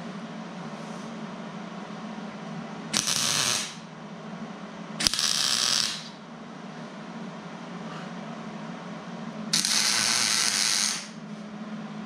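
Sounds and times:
sharp welding snap: 0:03.0 - 0:03.8, 0:05.0 - 0:06.2, 0:09.6 - 0:11.2
welding arc sizzling: 0:03.0 - 0:03.8, 0:05.0 - 0:06.2, 0:09.5 - 0:11.2.

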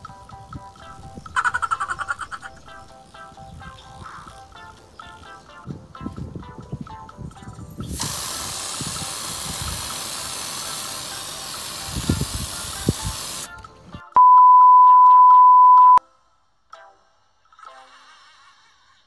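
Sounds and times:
light background music: 0:00.0 - 0:14.2
aerosol can spraying: 0:07.8 - 0:13.5
electronic beep tone: 0:14.2 - 0:16.0.

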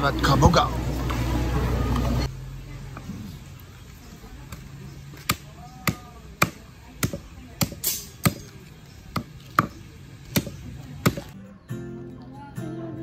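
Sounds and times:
knife chopping meat on wood: 0:09.1 - 0:11.3.

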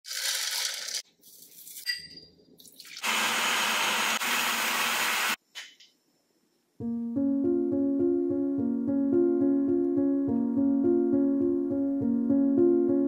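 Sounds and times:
nuts pouring into plastic bowl: 0:00.1 - 0:01.0
food processor motor whirring: 0:03.0 - 0:05.4.

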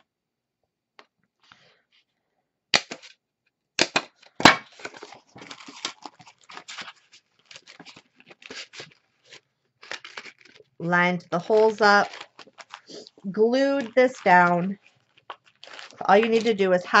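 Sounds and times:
paper bag clicks and snaps: 0:02.7 - 0:03.1
paper rustling and crinkling: 0:04.6 - 0:17.0.

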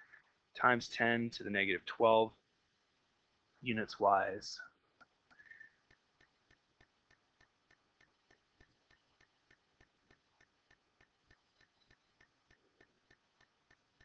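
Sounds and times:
faint even ticking: 0:05.0 - 0:14.0.

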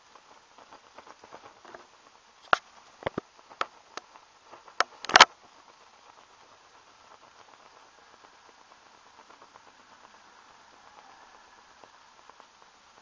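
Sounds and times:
alcohol stove crackling and popping: 0:00.0 - 0:13.0.

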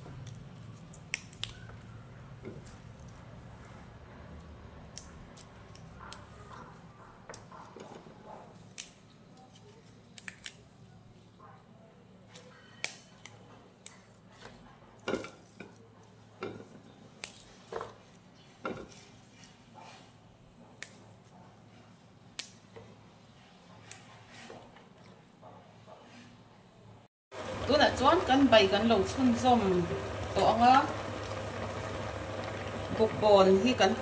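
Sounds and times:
leafy stems snapping: 0:00.2 - 0:01.9, 0:08.7 - 0:09.0, 0:10.1 - 0:10.7, 0:17.2 - 0:17.5, 0:22.4 - 0:22.6.

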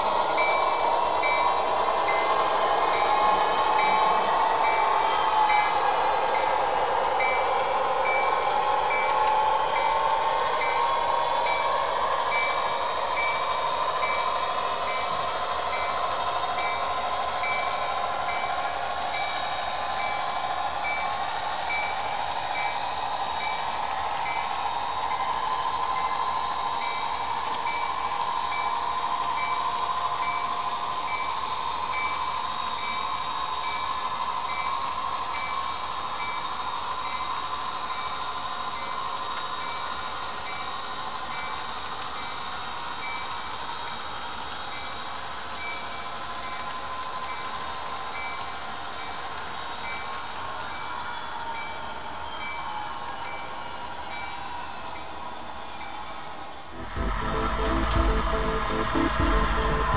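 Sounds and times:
model train electric whine: 0:00.0 - 0:59.9.

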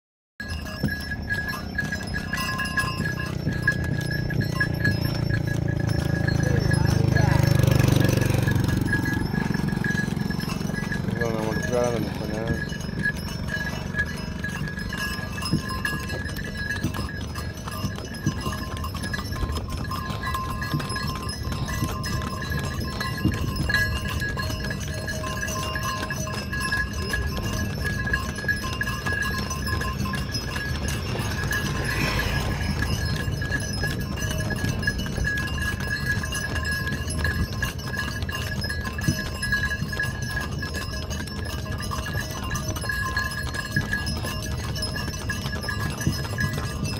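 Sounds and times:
cart rattling and rumbling: 0:00.4 - 0:46.9
hooves clopping: 0:00.4 - 0:46.9
steady high ringing: 0:00.4 - 0:46.9.

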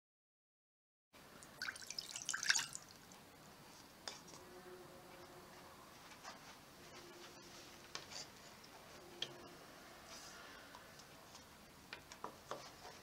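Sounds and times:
water splashing in a saucepan: 0:01.4 - 0:03.2.

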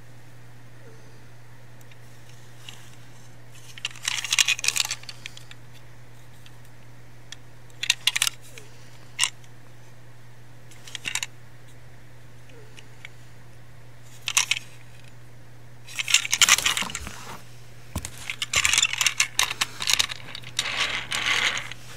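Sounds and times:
steady low hum: 0:00.0 - 0:21.9
plastic toy clicking and rattling: 0:03.6 - 0:05.5, 0:07.7 - 0:08.4, 0:10.8 - 0:11.3, 0:14.2 - 0:14.7, 0:15.9 - 0:17.1, 0:18.2 - 0:21.8.

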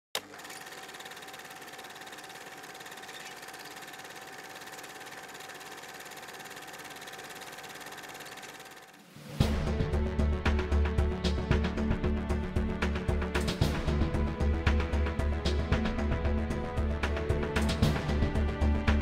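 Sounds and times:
film projector clattering: 0:00.2 - 0:09.2.

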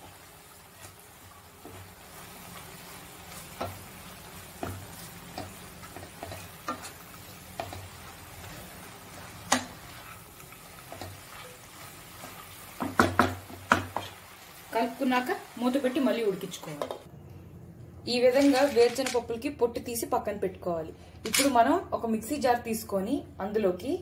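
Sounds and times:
wooden spatula scraping a pan: 0:00.0 - 0:13.1
leaves sizzling in a pan: 0:00.0 - 0:17.1.

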